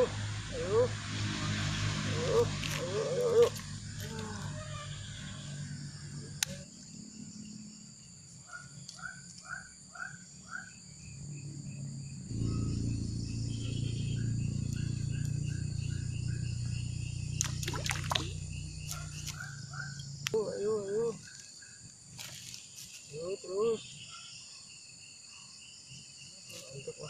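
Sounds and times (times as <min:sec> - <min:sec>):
high insect drone: 0:00.0 - 0:27.0
insect calls: 0:00.0 - 0:27.0
low steady rumble: 0:11.1 - 0:20.3.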